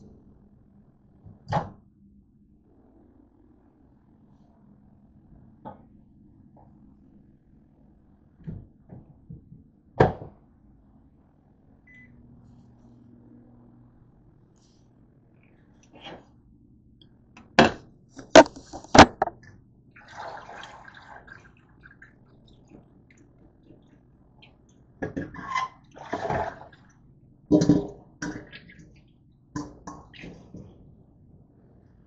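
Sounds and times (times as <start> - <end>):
splashy liquid noise: 20.0 - 22.2.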